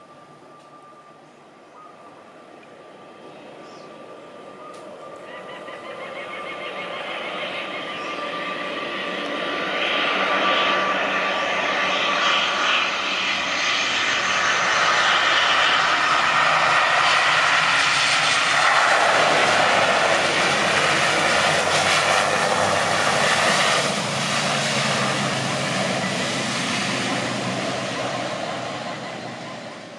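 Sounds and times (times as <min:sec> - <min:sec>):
turboprop plane passing: 0:00.0 - 0:29.9.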